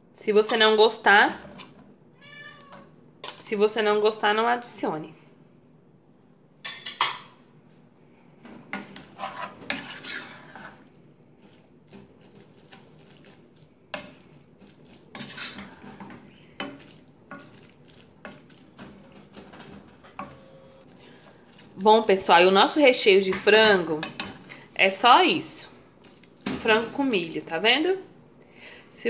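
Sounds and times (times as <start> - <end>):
wooden spoon scraping a saucepan: 8.7 - 22.4.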